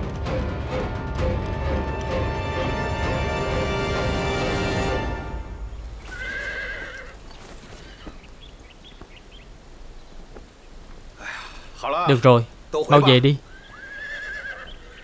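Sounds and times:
music: 0.0s - 6.5s
hooves clopping: 5.6s - 11.2s
horse whinnying: 6.1s - 7.2s, 13.5s - 15.0s.

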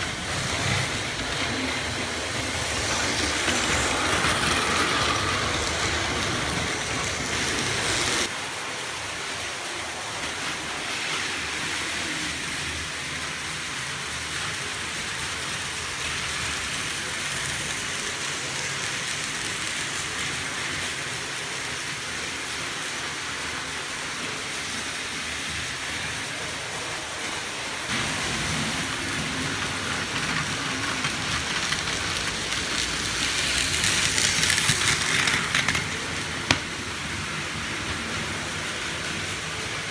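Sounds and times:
toy trains whirring and rattling: 0.0s - 39.9s.

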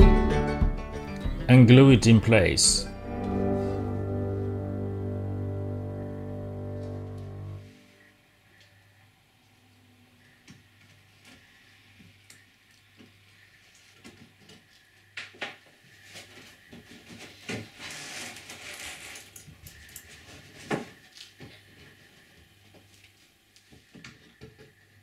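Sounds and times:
rustling rubbing stretch: 16.0s - 19.4s.

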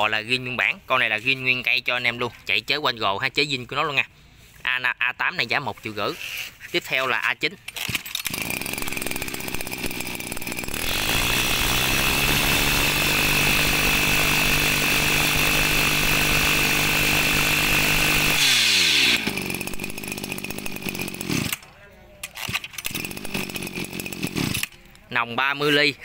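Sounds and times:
brush cutter engine revving: 7.6s - 25.0s.

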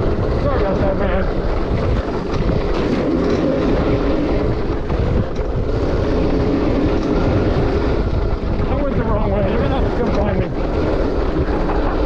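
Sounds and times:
dirt bike engine running: 0.0s - 12.0s
wind noise on microphone: 0.0s - 12.0s.

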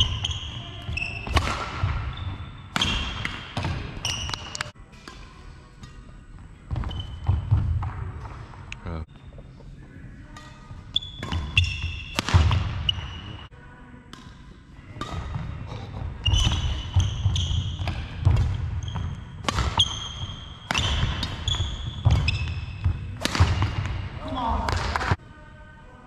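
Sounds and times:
shoes squeaking on wooden floor: 0.0s - 4.7s, 6.6s - 8.4s, 12.8s - 13.5s, 15.6s - 23.2s
rackets striking shuttlecock: 0.0s - 6.1s, 10.4s - 13.3s, 14.1s - 15.5s, 16.3s - 25.2s.

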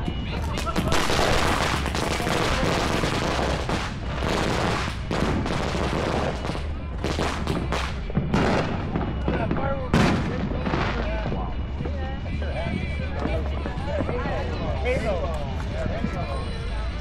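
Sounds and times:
firework crackling and popping: 0.0s - 15.8s
sharp firework cracks: 0.3s - 11.7s
firework sparks hissing: 0.4s - 8.0s.

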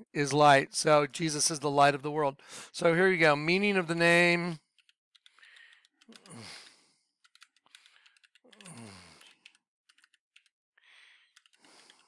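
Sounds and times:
keyboard typing: 4.8s - 6.4s, 7.2s - 10.5s, 11.3s - 12.0s.

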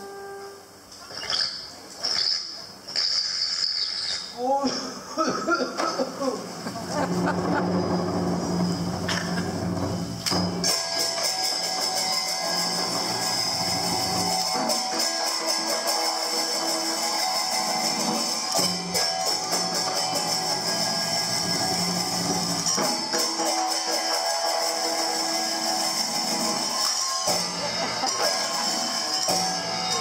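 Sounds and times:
percussion strokes: 0.0s - 4.4s, 5.8s - 30.0s
plucked string instruments: 6.6s - 30.0s.

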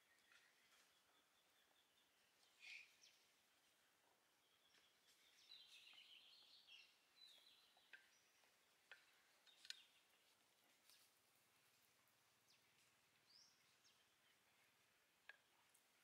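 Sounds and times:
faint bird chirps: 0.0s - 11.1s
soft clicks: 8.8s - 10.0s.

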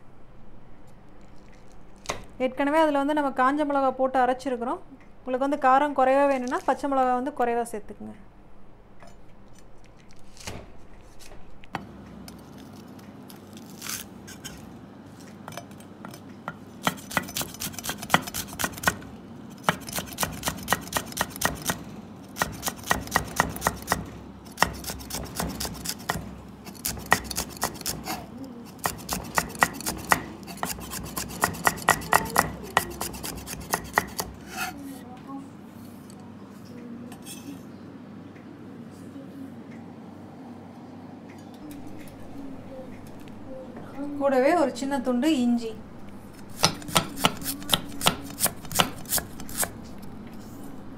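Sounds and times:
knife chopping on wooden block: 22.4s - 28.2s, 28.8s - 34.7s, 46.5s - 49.8s.

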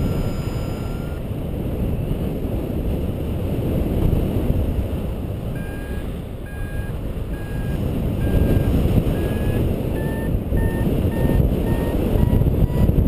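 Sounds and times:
variometer beeping: 0.0s - 1.2s, 5.5s - 13.0s
wind on microphone: 0.0s - 13.0s.

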